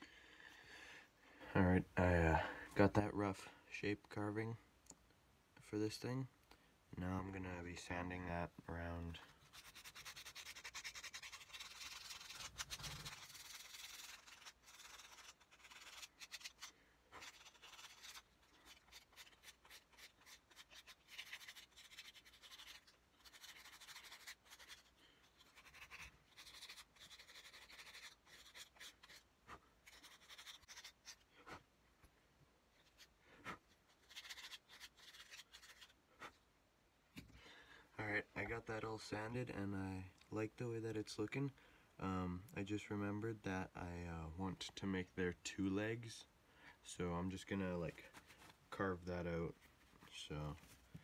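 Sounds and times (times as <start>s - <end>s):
sandpaper scratching on wood: 9.4s - 29.2s.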